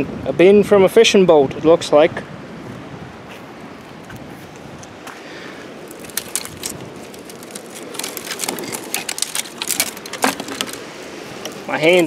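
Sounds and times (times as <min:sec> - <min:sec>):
dry twigs snapping: 0:05.8 - 0:11.7.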